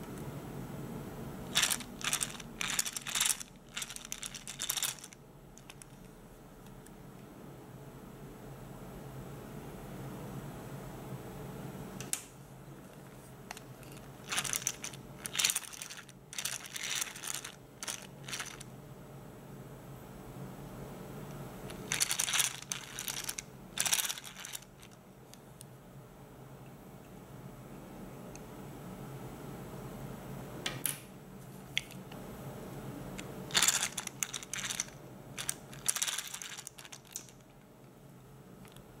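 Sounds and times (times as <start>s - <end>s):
toy fishing reel gears clicking: 1.5s - 5.8s, 14.3s - 18.6s, 21.9s - 24.6s.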